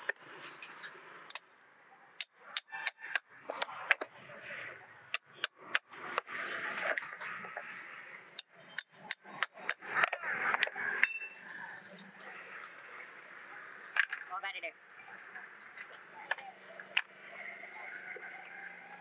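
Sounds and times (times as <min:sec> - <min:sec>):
hammer striking metal chisel: 0:02.2 - 0:04.1, 0:08.4 - 0:10.2.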